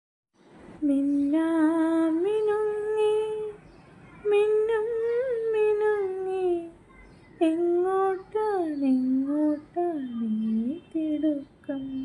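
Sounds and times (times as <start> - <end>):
person singing long notes: 7.4 - 12.0.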